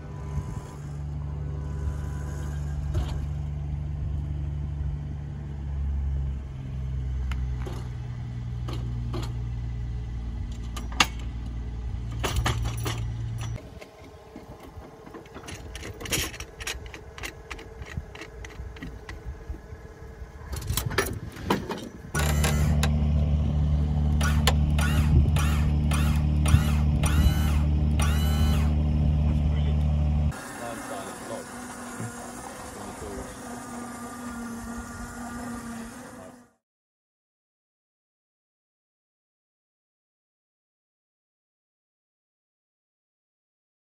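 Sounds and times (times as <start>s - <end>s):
low hum: 0.0s - 30.6s.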